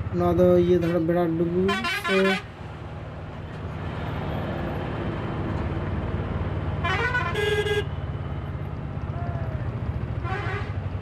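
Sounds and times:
auto-rickshaw engine running: 0.0s - 11.0s
road and traffic noise: 0.0s - 11.0s
vehicle horn: 1.7s - 2.4s, 6.8s - 8.0s, 10.2s - 10.8s.

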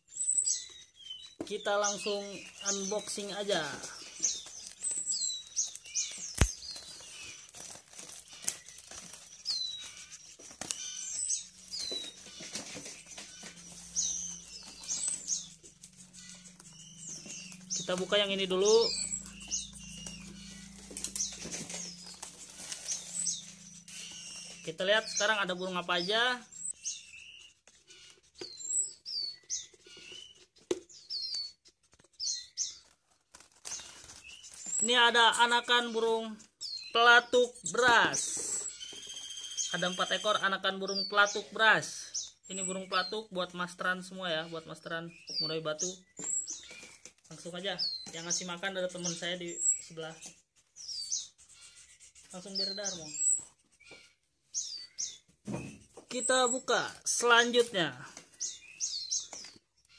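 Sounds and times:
young songbirds chirping: 0.0s - 59.9s
rustle of bamboo baskets: 2.0s - 24.7s, 31.8s - 35.1s.

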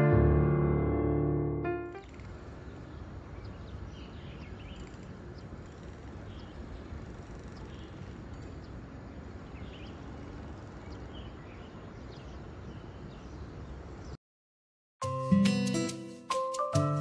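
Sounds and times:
birds chirping: 1.9s - 14.2s.

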